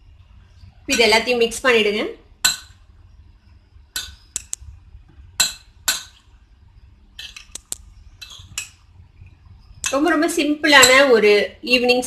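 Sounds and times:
metal spoon scraping a bowl: 0:07.2 - 0:07.6, 0:08.2 - 0:08.8.

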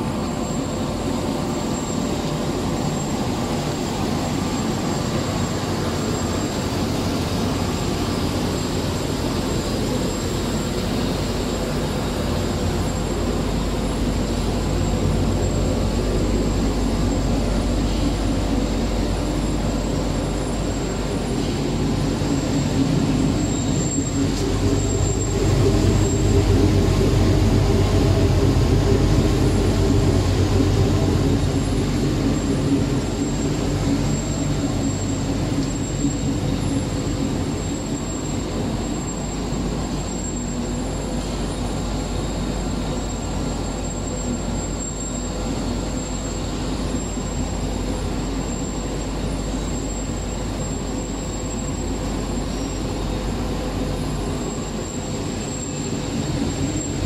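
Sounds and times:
thin high whine: 0:00.0 - 0:57.0
rotary drum rumbling drone: 0:12.4 - 0:38.7.

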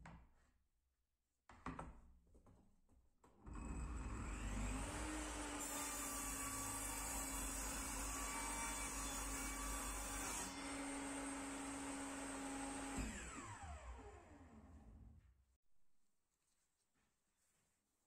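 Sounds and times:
table saw motor hum: 0:03.6 - 0:15.1
saw blade cutting wood: 0:04.2 - 0:13.4
saw blade winding down: 0:12.8 - 0:14.8.

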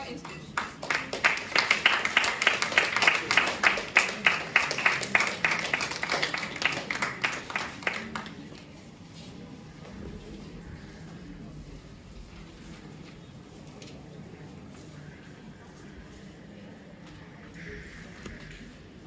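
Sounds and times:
audience applauding: 0:00.1 - 0:08.6.

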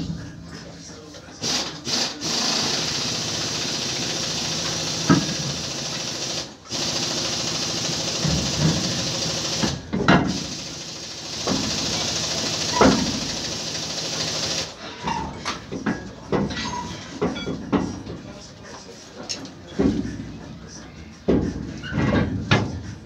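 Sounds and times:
pneumatic air tool running: 0:01.4 - 0:14.8.

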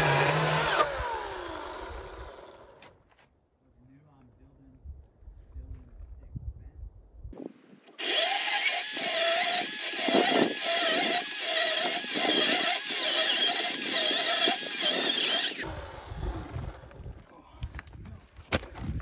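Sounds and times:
chainsaw cutting wood: 0:00.0 - 0:03.0, 0:07.9 - 0:17.2.

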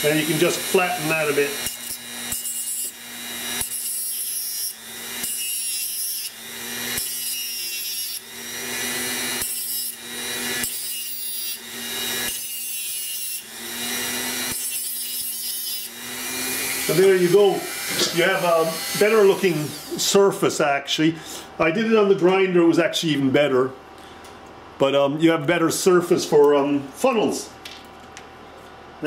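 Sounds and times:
rotary tool grinding metal: 0:00.0 - 0:20.0.

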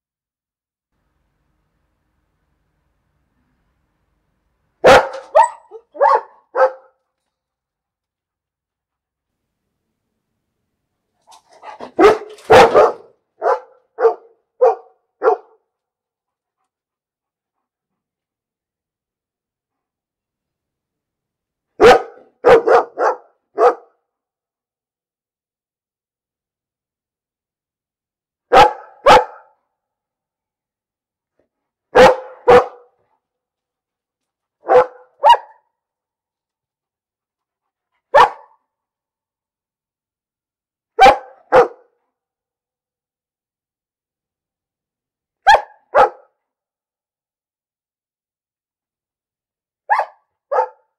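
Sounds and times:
dog barking: 0:04.8 - 0:07.0, 0:11.6 - 0:15.7, 0:21.8 - 0:24.0, 0:28.5 - 0:29.6, 0:31.9 - 0:33.0, 0:34.6 - 0:35.7, 0:38.1 - 0:38.7, 0:41.0 - 0:42.0, 0:45.4 - 0:46.4, 0:49.9 - 0:50.9.

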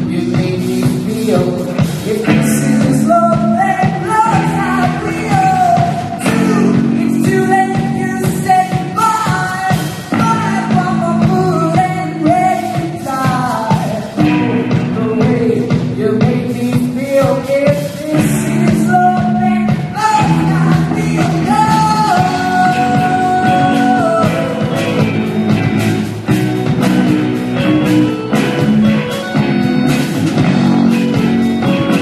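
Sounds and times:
person singing long notes: 0:00.0 - 0:25.6
rock band playing live: 0:00.0 - 0:32.0.

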